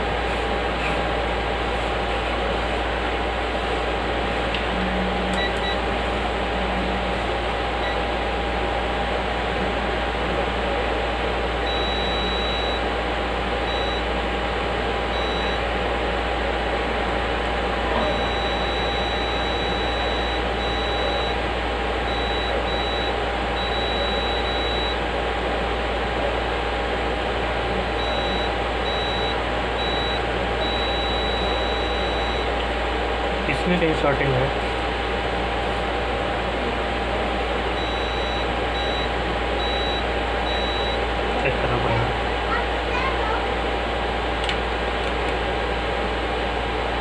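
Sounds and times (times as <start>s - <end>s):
steady fan hum: 0.0s - 47.0s
multimeter continuity beeps: 5.4s - 5.8s, 11.7s - 12.8s, 13.7s - 14.1s, 15.1s - 15.6s, 18.0s - 21.4s, 22.1s - 25.0s, 28.0s - 32.5s, 37.8s - 41.0s.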